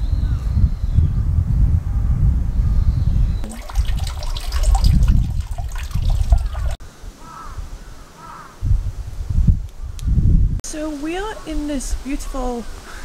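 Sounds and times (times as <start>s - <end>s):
water trickling into stone basin: 3.4s - 6.8s.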